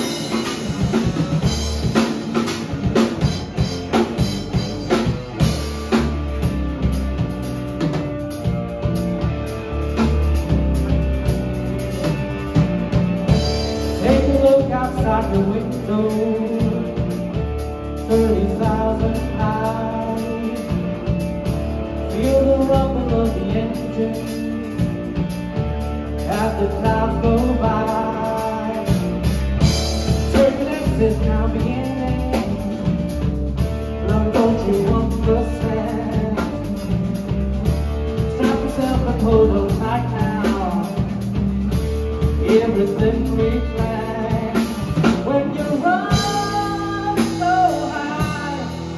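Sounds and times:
drum kit: 0.0s - 48.9s
electric bass: 0.0s - 48.9s
electric guitar: 0.0s - 48.9s
person singing: 13.8s - 17.4s, 18.0s - 21.3s, 22.1s - 25.3s, 26.2s - 29.3s, 30.1s - 33.3s, 34.0s - 37.3s, 38.3s - 41.4s, 42.3s - 48.9s.

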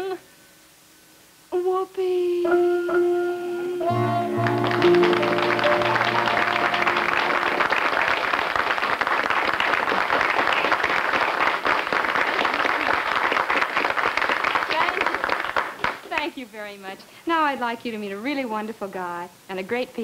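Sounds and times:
band holding final chord: 2.8s - 8.4s
audience applauding: 3.9s - 16.4s.

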